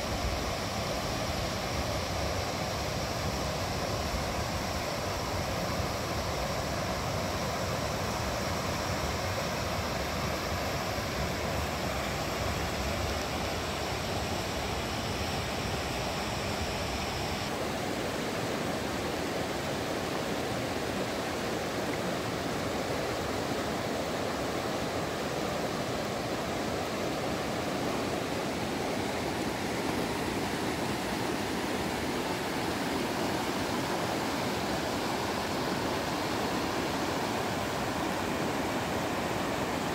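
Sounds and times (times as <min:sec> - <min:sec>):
river water pouring over rocks: 0:17.6 - 0:39.9.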